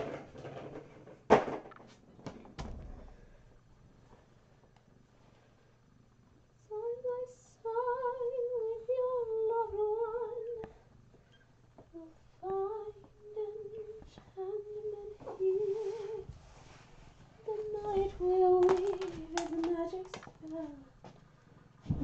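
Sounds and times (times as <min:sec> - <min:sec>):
woman humming: 0:11.9 - 0:16.3, 0:17.5 - 0:20.9.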